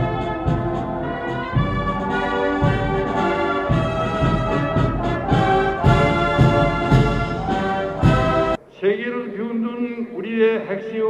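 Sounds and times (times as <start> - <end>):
brass-led orchestral music: 0.0 - 8.6.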